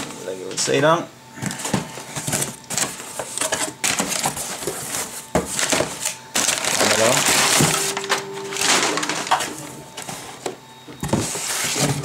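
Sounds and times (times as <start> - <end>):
packing paper crinkling: 2.3 - 10.1.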